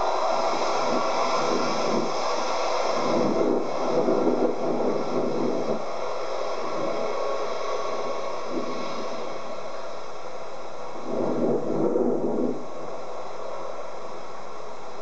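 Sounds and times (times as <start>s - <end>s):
jet engines whining: 0.0s - 15.0s.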